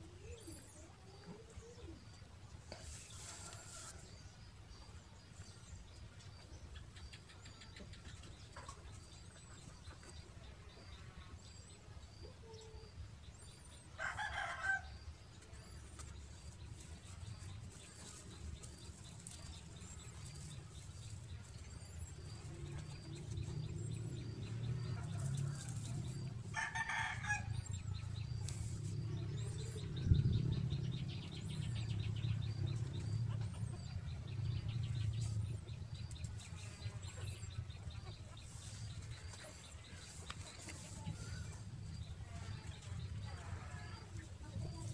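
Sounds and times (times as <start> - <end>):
low rumble: 27.5 - 40.0.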